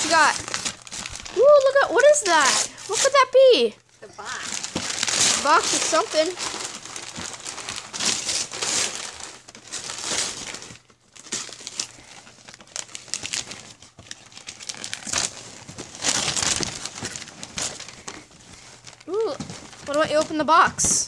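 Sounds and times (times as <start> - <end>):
wrapping paper crinkling: 0.0 - 21.0.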